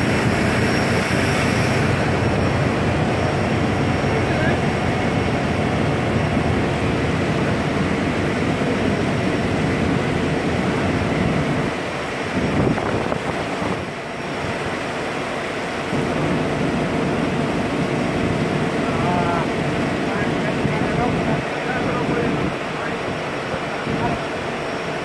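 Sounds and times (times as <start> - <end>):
churning propeller wash: 0.0 - 25.0
ship engine drone: 0.0 - 25.0
wind on microphone: 9.9 - 14.8.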